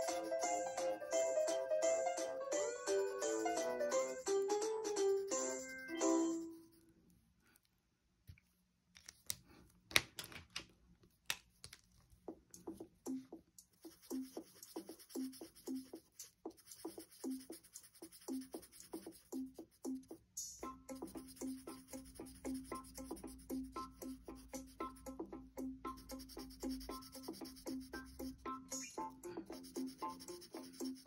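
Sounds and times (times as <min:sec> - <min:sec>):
marker clicks and scratches: 0:13.7 - 0:20.2, 0:21.0 - 0:25.1, 0:25.9 - 0:31.0
marker rubbing on paper: 0:13.7 - 0:20.2, 0:20.9 - 0:25.2, 0:25.9 - 0:31.0.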